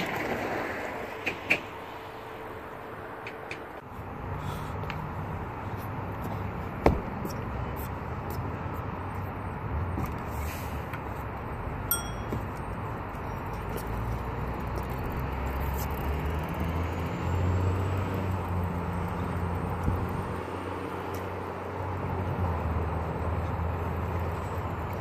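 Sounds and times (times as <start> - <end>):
short metallic ping: 11.9 - 12.4.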